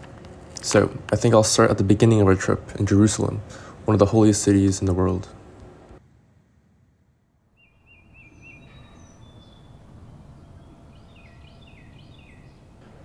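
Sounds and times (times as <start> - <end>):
low background hum: 0.0 - 13.0
bird whistles: 7.6 - 12.8
small birds chirping: 7.6 - 13.0.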